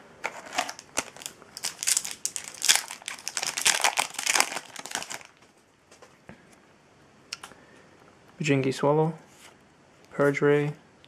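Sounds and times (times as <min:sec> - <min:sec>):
foil wrapper crinkling: 0:00.3 - 0:05.4.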